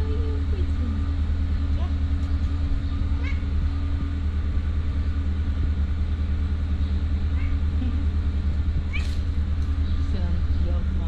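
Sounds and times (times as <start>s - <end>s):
low motor hum: 0.0s - 11.0s
cat meowing: 3.2s - 3.5s, 7.4s - 7.6s, 8.9s - 9.2s.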